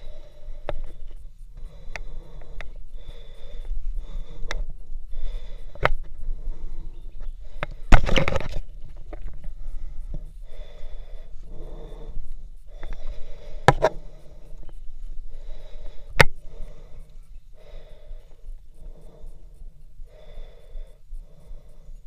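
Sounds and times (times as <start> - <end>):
heavy breathing: 0.0 - 22.0.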